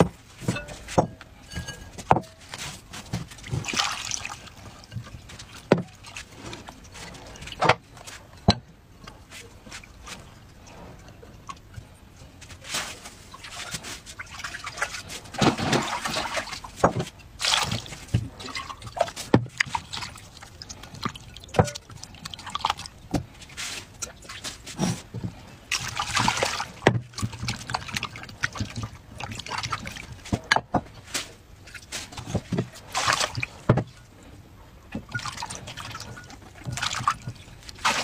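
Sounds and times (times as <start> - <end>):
water splashing in a bowl: 3.2 - 7.7, 12.7 - 16.8, 17.4 - 23.0, 25.7 - 30.4, 32.5 - 34.1, 35.0 - 38.0.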